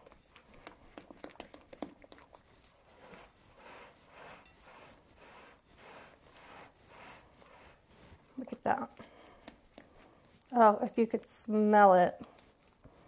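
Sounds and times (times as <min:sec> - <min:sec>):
spatula stirring thick batter: 0:00.0 - 0:13.0.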